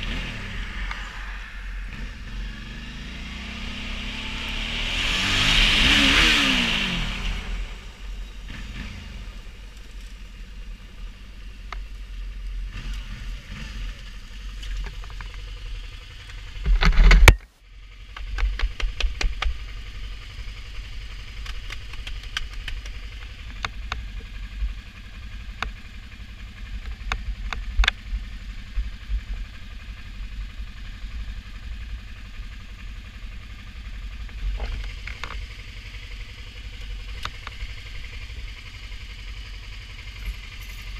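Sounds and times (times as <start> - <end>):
motorcycle engine idling: 6.4 - 40.9
sharp clicks and knocks: 16.3 - 17.5, 18.1 - 19.6, 21.4 - 24.1.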